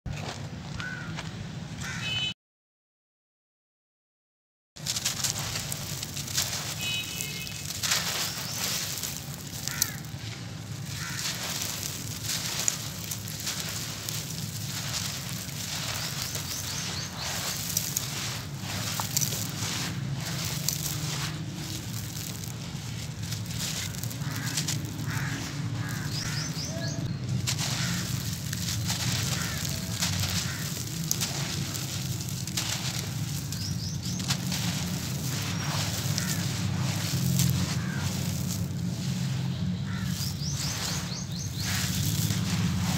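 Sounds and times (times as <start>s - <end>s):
gritty grains pouring: 4.8s - 42.9s
small crunches: 4.8s - 42.9s
bird chirps: 14.8s - 38.6s, 39.3s - 42.3s.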